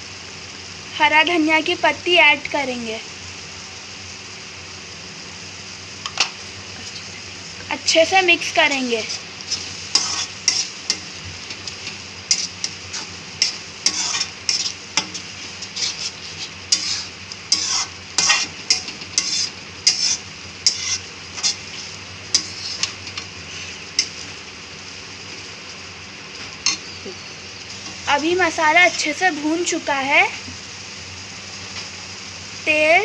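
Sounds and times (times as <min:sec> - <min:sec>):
sizzle of frying in oil: 0:00.0 - 0:33.0
metal spoon scraping a pan: 0:08.6 - 0:24.4, 0:26.6 - 0:27.0.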